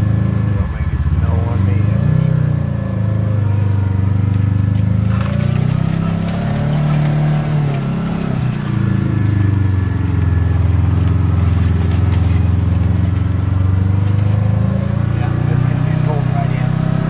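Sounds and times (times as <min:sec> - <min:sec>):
engine running under load: 0:00.0 - 0:17.0.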